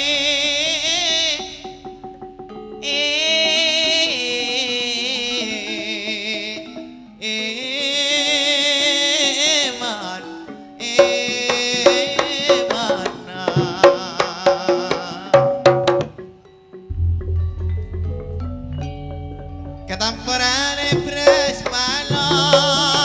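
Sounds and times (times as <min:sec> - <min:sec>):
wavering sung melody: 0:00.0 - 0:23.0
metallophone notes ringing: 0:10.5 - 0:23.0
drum strokes: 0:11.0 - 0:16.3, 0:16.9 - 0:23.0
low pulsing tone: 0:16.9 - 0:23.0.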